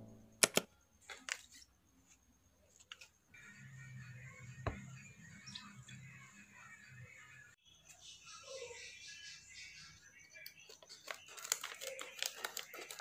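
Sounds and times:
foil sachet crinkling: 10.8s - 13.0s.

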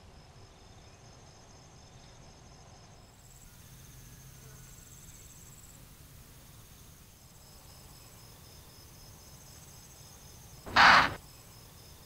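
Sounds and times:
antelope alarm snort: 10.7s - 11.2s
insects chirring: 10.7s - 11.2s.

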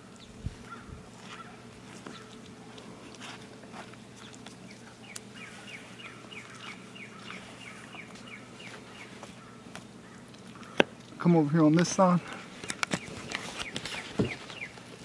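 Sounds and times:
small bird chirping: 4.2s - 10.8s, 12.6s - 14.8s.

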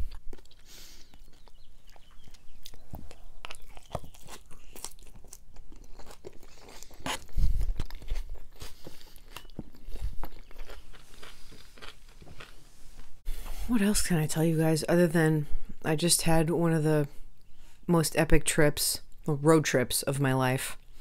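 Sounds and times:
chewing crunchy food: 0.0s - 12.6s.

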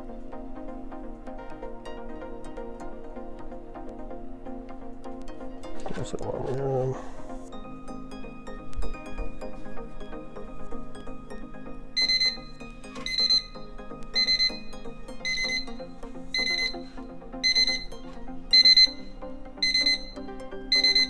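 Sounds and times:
alarm clock beeping: 7.6s - 21.0s.

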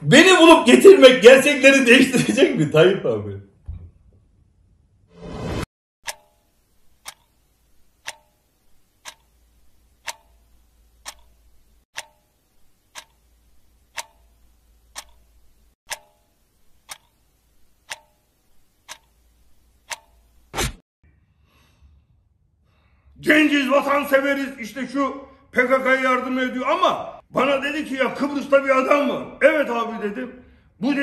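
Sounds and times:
clock ticking: 6.0s - 20.5s.

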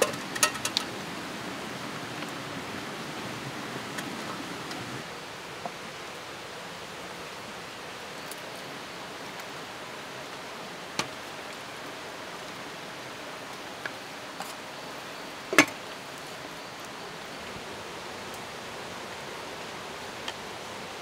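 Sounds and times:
ladle clinking against metal pot: 0.0s - 0.9s
metal lid clanking on pot: 0.0s - 0.9s.

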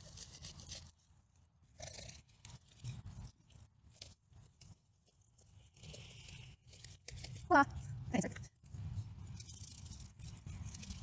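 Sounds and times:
roots tearing by hand: 9.0s - 11.0s.

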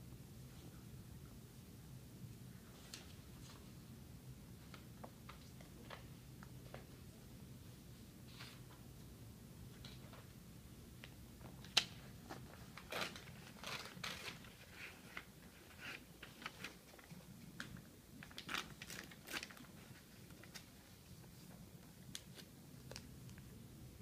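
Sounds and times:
low room hum: 0.0s - 24.0s
paper rustling: 11.5s - 23.1s.

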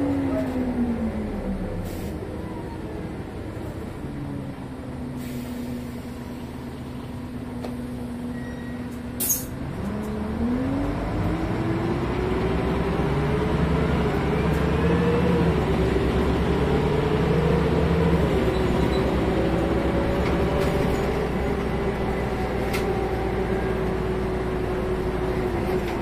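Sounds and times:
bus diesel engine: 0.0s - 26.0s
compressed air hiss: 5.2s - 6.0s.

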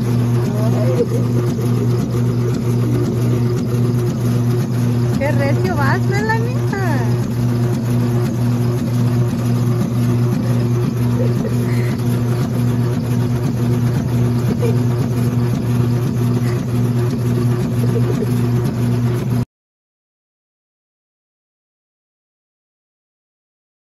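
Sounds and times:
electric motor humming: 0.0s - 19.4s.

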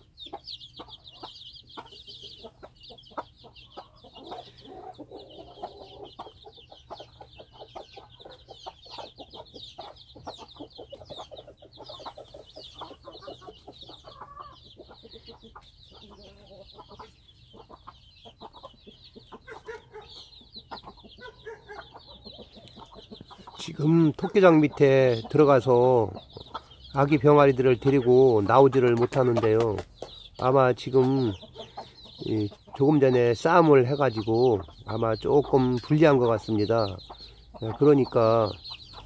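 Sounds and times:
chicks peeping: 0.0s - 39.0s
hen clucking: 0.0s - 39.0s.

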